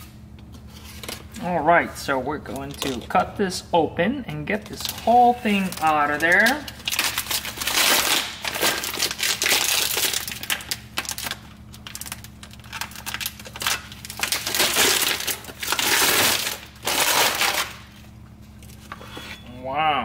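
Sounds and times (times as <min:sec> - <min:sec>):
plastic wrap crinkling and tearing: 0:04.6 - 0:18.9.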